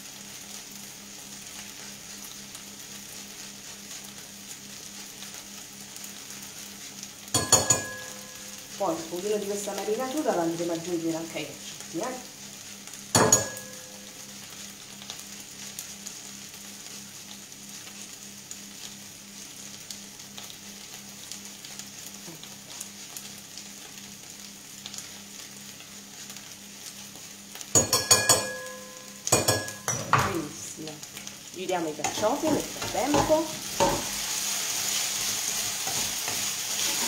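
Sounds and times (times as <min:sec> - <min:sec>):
food sizzling in a frying pan: 0:00.0 - 0:37.0
kitchen utensils clinking: 0:07.4 - 0:08.4, 0:13.2 - 0:13.9, 0:27.8 - 0:30.5.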